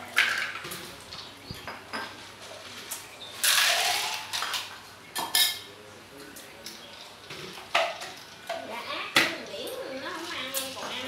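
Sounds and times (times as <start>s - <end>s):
cutlery clinking against bowls: 1.6s - 2.3s, 2.9s - 9.4s.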